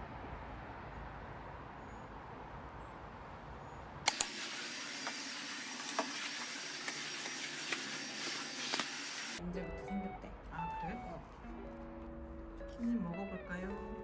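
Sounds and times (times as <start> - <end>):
sharp clicks: 4.1 - 7.0
stick vacuum cleaner running: 4.1 - 9.4.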